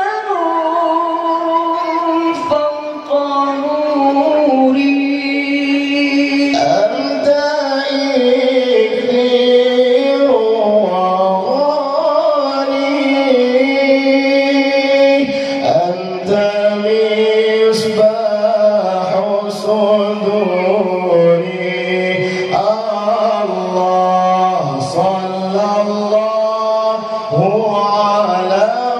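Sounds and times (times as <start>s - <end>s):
two men singing a devotional song: 0.0s - 28.9s.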